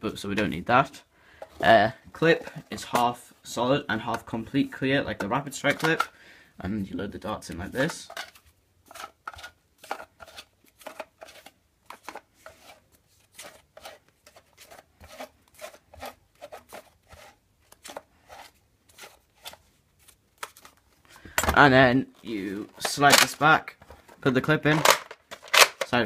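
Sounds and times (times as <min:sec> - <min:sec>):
plastic clicks and scrapes: 0:07.8 - 0:19.6, 0:22.8 - 0:26.0.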